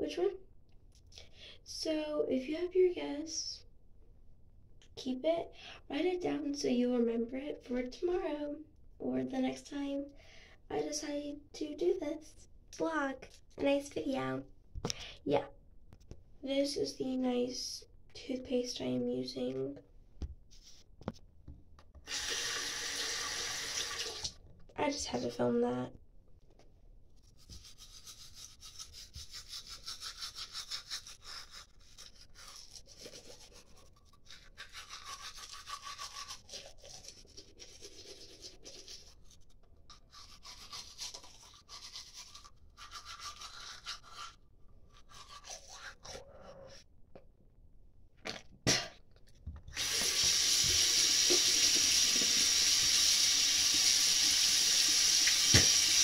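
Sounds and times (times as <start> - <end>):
water running into sink: 22.1 - 24.4, 49.7 - 56.0
toothbrush scrubbing teeth: 27.2 - 46.8.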